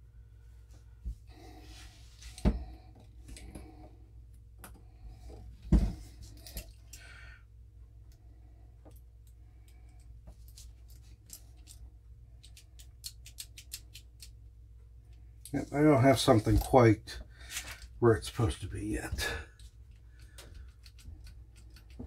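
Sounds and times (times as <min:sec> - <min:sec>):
metallic clicks of revolver parts: 0:12.4 - 0:14.4.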